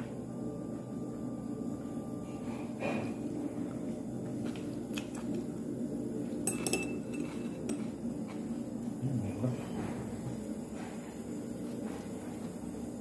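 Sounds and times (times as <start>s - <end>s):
steady low hum: 0.0s - 13.0s
chopsticks clinking on dishes: 6.5s - 7.8s.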